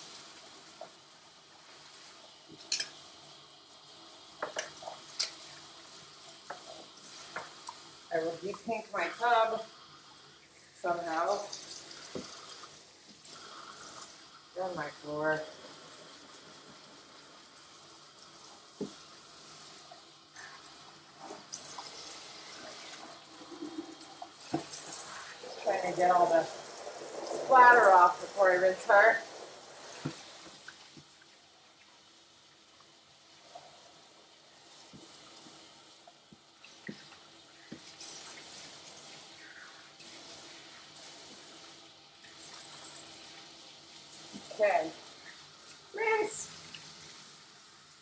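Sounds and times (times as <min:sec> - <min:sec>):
hose sprayer hissing: 0:06.0 - 0:09.7, 0:18.2 - 0:31.2.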